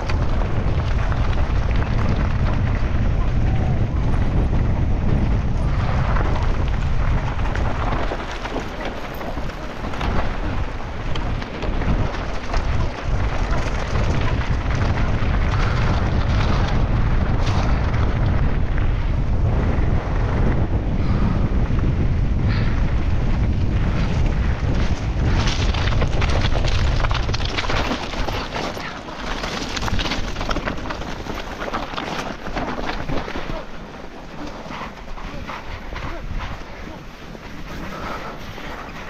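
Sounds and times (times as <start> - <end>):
bike clattering over rough ground: 0.0 - 39.0
wind rushing over microphone: 0.0 - 39.0.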